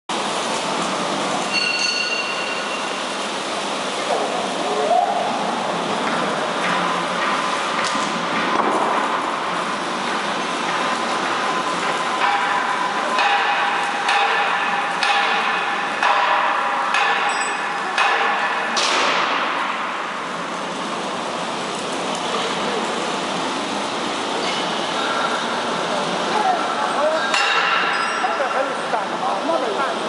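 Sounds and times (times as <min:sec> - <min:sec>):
ringing metal knocks: 0:12.2 - 0:19.4, 0:27.3 - 0:28.4.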